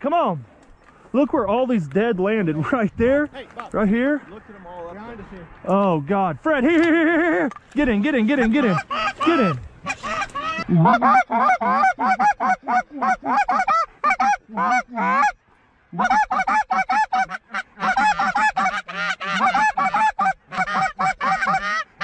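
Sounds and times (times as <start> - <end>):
geese honking and clucking: 6.8 - 22.0.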